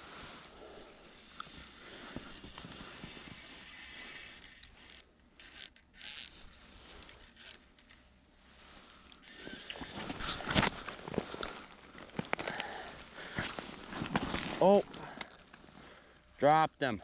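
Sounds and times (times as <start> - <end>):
jacket rustling and scraping: 0.0 - 16.0.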